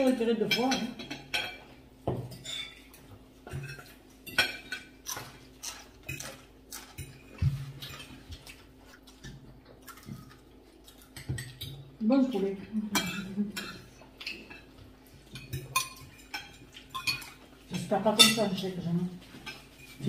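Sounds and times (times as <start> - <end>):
cutlery clinking on plates: 0.0 - 8.3, 12.9 - 18.6.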